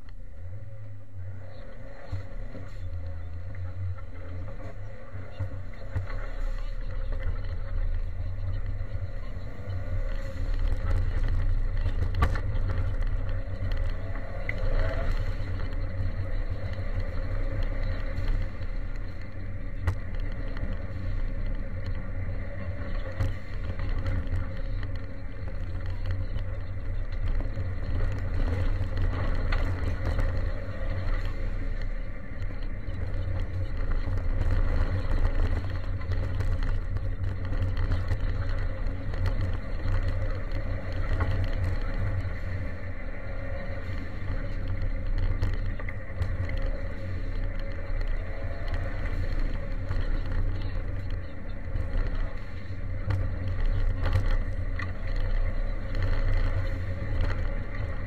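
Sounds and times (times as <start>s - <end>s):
car engine rumble: 0.0s - 58.0s
tyres on gravel: 0.0s - 58.0s.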